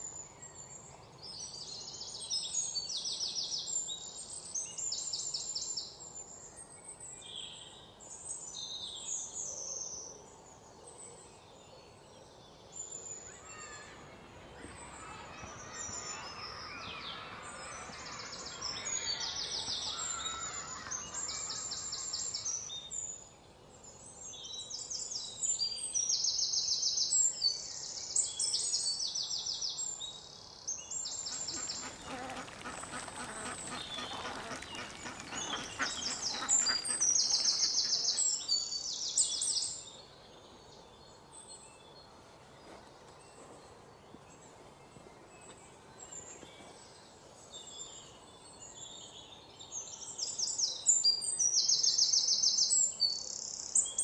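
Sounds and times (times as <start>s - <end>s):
birds singing rapid trills: 12.8s - 40.1s
lower rough bird calls: 31.2s - 38.4s.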